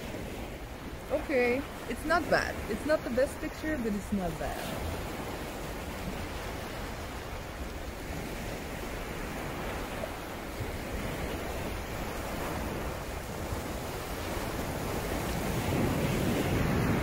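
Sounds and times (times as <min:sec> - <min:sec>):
surf washing on shore: 0:00.0 - 0:17.0
wind rumble on microphone: 0:00.0 - 0:17.0.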